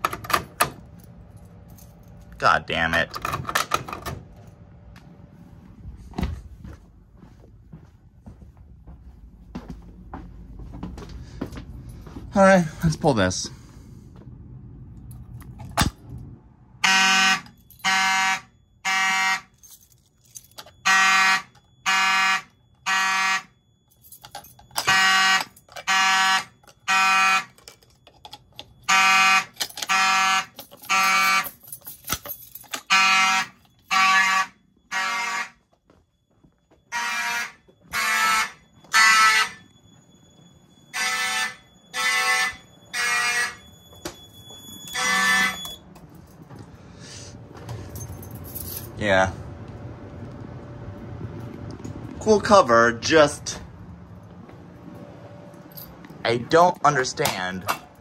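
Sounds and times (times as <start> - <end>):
fire alarm horns buzzing: 16.6 - 58.0.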